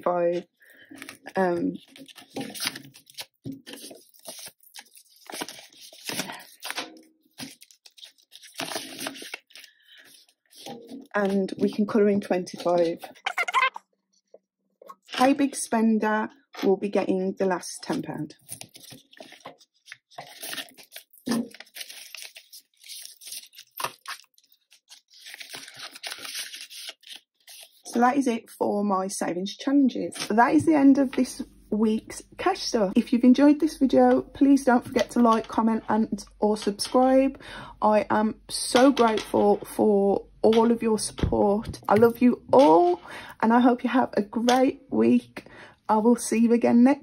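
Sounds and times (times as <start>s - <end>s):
banknotes crinkling and rustling: 0.4s - 13.2s, 17.9s - 28.0s, 33.6s - 37.3s.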